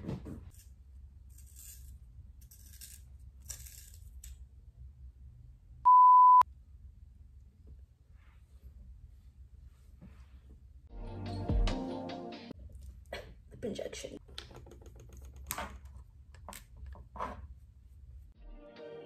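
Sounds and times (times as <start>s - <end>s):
censor beep: 5.8s - 6.4s.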